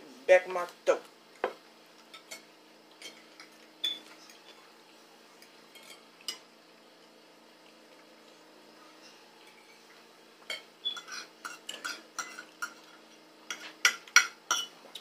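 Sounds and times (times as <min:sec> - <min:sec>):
fork clinking against dishes: 0:02.2 - 0:04.4, 0:10.5 - 0:12.9, 0:13.5 - 0:15.0.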